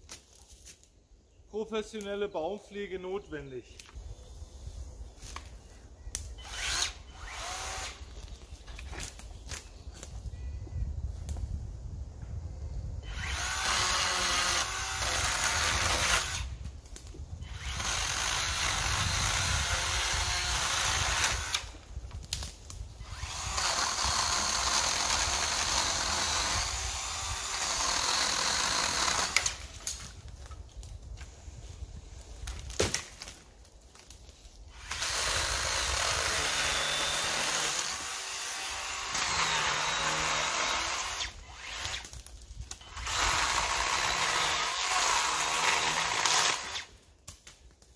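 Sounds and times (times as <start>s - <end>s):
chainsaw cutting branches: 6.4s - 8.2s, 13.0s - 16.5s, 17.4s - 30.2s, 34.7s - 47.4s.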